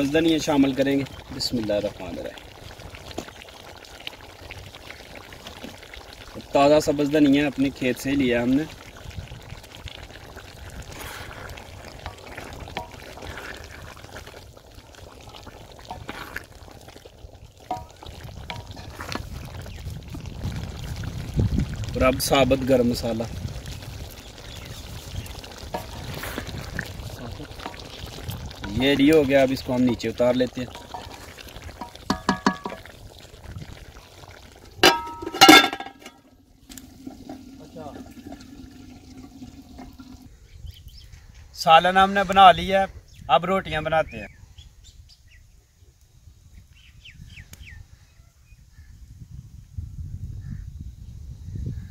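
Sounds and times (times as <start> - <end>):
curry simmering in a pot: 0.0 - 44.4
wooden spoon stirring: 10.0 - 20.4, 24.8 - 36.1
wooden spoon tapping a metal pot: 17.6 - 19.2, 30.7 - 32.9, 34.8 - 36.2
pot lid clanking: 31.8 - 32.8, 34.8 - 36.2
spoon knocking against pot: 31.8 - 32.8.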